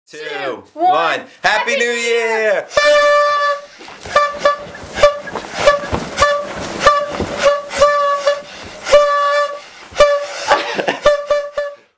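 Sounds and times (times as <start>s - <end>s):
party horn toots: 2.7s - 11.9s.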